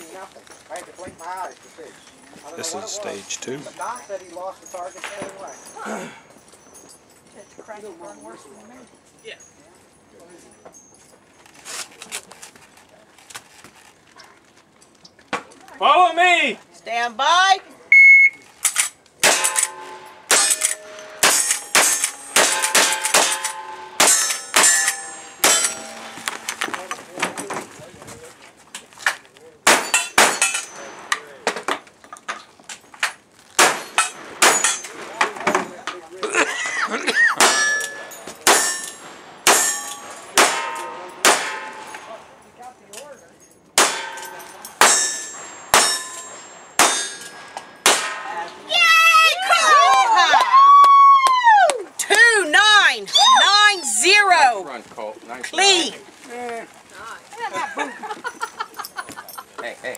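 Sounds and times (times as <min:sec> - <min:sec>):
rifle shots: 0:18.8 - 0:26.6, 0:33.6 - 0:35.1, 0:40.4 - 0:41.9, 0:46.8 - 0:48.3
steel target clanging: 0:19.2 - 0:27.5, 0:29.7 - 0:31.5, 0:33.6 - 0:35.6, 0:37.4 - 0:42.4, 0:43.8 - 0:48.7.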